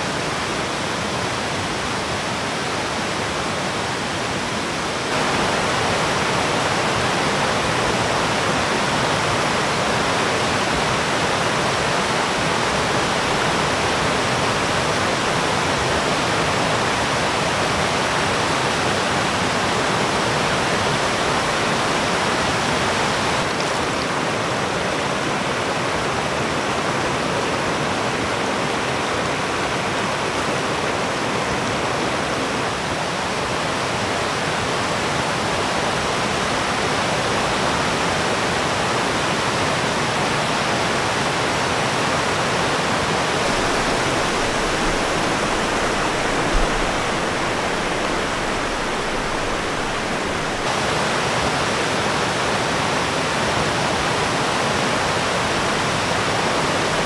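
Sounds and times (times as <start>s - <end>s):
stream rushing over rocks: 0.0s - 57.0s
low thump: 43.5s - 50.7s.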